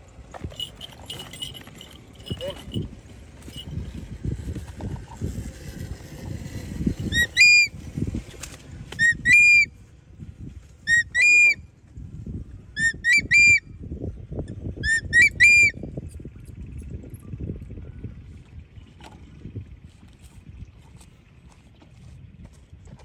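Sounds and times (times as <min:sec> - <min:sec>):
low wind rumble: 0:00.0 - 0:23.0
hawk-eagle whistled calls: 0:07.1 - 0:07.7, 0:08.9 - 0:09.7, 0:10.8 - 0:11.6, 0:12.8 - 0:13.6, 0:14.8 - 0:15.8.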